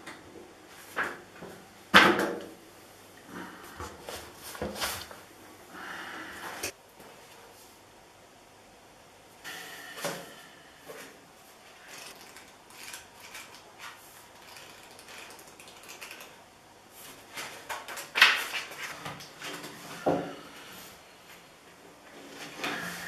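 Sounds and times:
book pages flipping: 0:17.0 - 0:19.8
paper rustles and clicks: 0:17.1 - 0:19.8.

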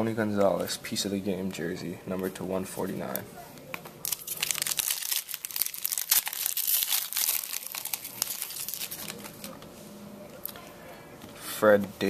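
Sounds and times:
foil wrapper tearing and crinkling: 0:04.0 - 0:09.6.

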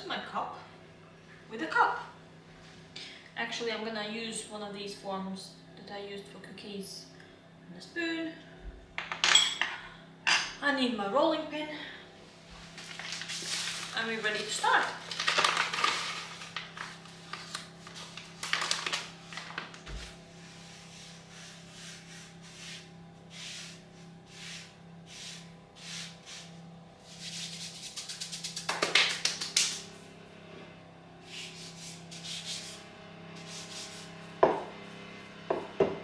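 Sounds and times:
rolling pin rolling dough: 0:19.8 - 0:28.6.

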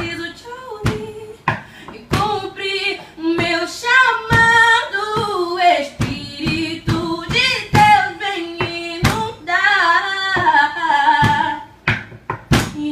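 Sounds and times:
woman singing: 0:00.0 - 0:11.8, 0:12.6 - 0:12.9
sharp knocks: 0:04.2 - 0:09.4, 0:11.2 - 0:12.8.

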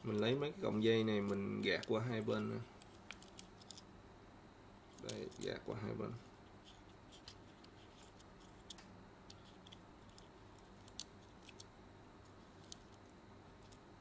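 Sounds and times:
low electrical hum: 0:00.0 - 0:14.0
small plastic parts clicking: 0:01.2 - 0:03.8, 0:04.9 - 0:05.6, 0:07.1 - 0:11.7.

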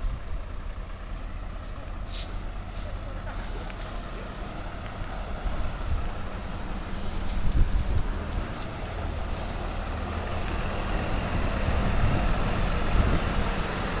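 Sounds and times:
diesel engine rumbling: 0:00.0 - 0:14.0.

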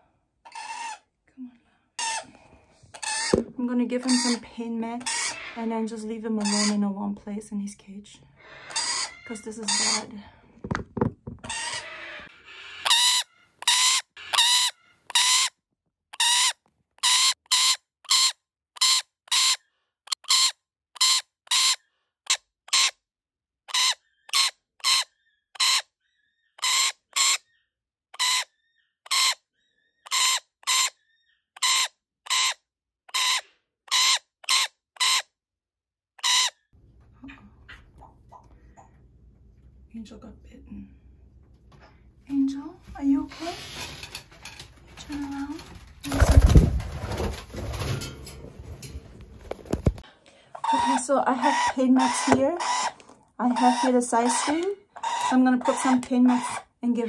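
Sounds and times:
parrot screeching: 0:00.5 - 0:01.0, 0:02.0 - 0:02.3, 0:02.9 - 0:03.4, 0:05.0 - 0:05.7, 0:08.4 - 0:10.0, 0:11.4 - 0:15.6, 0:16.2 - 0:23.0, 0:23.7 - 0:27.6, 0:28.2 - 0:35.3, 0:36.2 - 0:36.6, 0:50.5 - 0:56.7.

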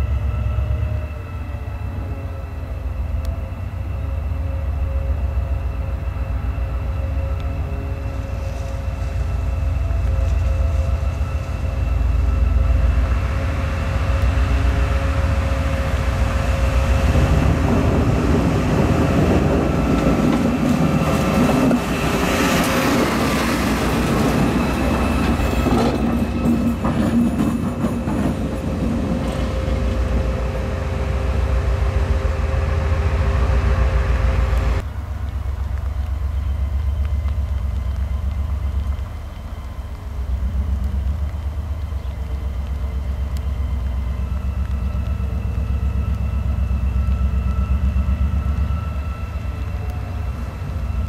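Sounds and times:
locomotive machinery humming: 0:00.0 - 0:51.0
train wheels clacking on rails: 0:15.0 - 0:30.3.

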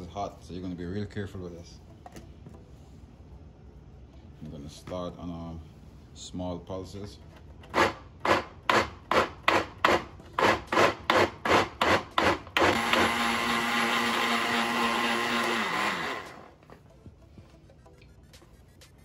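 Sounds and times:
blender motor chopping: 0:07.7 - 0:16.6.

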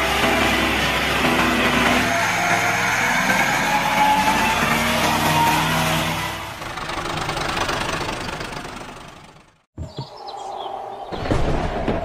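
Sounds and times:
tractor engine running: 0:00.0 - 0:03.6, 0:04.2 - 0:09.7.

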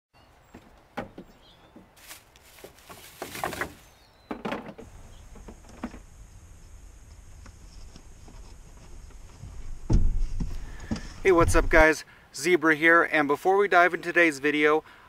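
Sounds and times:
rustling and scraping: 0:00.5 - 0:11.9
gear knocking and clunking: 0:09.0 - 0:11.8.

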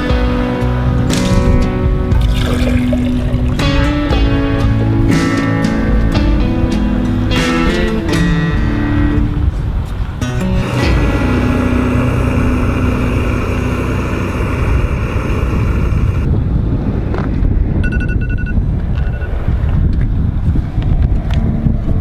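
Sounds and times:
outdoor rumble: 0:01.1 - 0:17.8
gas stove burner running: 0:11.3 - 0:16.3
quick electronic beeps: 0:17.8 - 0:19.4.

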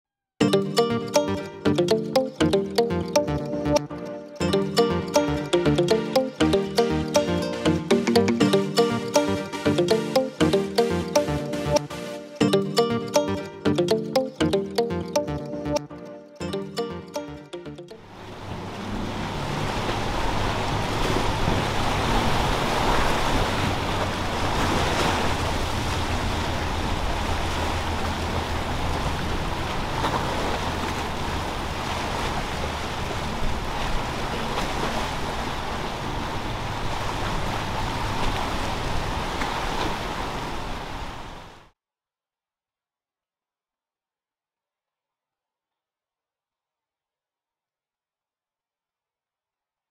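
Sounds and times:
boat engines humming: 0:00.4 - 0:15.8, 0:16.4 - 0:41.5
waves breaking: 0:00.5 - 0:15.8, 0:16.5 - 0:41.7
wind: 0:18.0 - 0:41.7.

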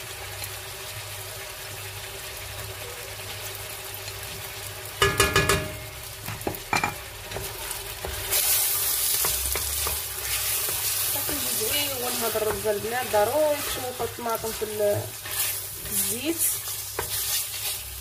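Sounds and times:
onions and beef sizzling in oil: 0:00.0 - 0:18.0
wooden spoon scraping pot: 0:06.9 - 0:17.9.

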